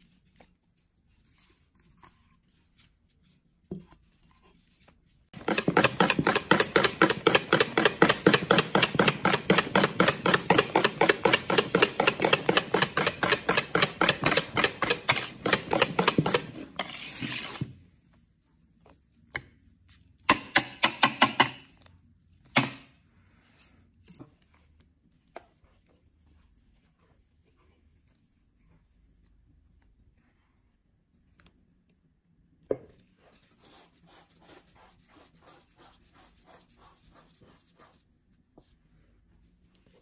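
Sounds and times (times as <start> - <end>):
whisk beating batter in bowl: 5.4 - 17.6.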